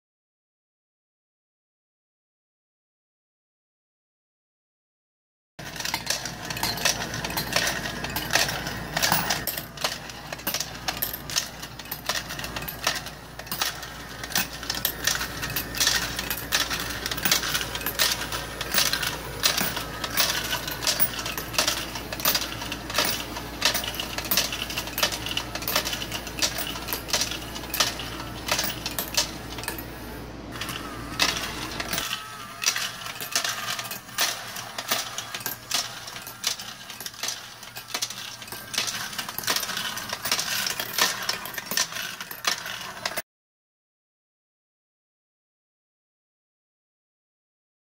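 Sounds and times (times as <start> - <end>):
coins clattering in sorter: 5.6 - 43.2.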